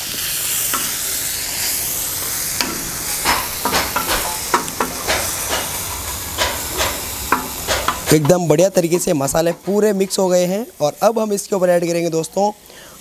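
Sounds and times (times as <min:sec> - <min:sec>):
spices sizzling in oil: 0:00.0 - 0:13.0
spatula scraping a griddle: 0:00.7 - 0:10.4.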